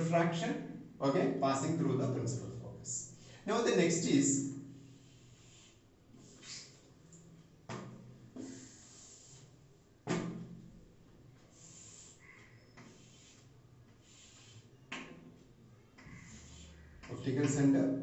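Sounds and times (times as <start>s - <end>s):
scratchy drawing strokes on board: 4.8s - 6.8s, 8.4s - 9.6s, 11.4s - 15.1s, 16.0s - 17.6s.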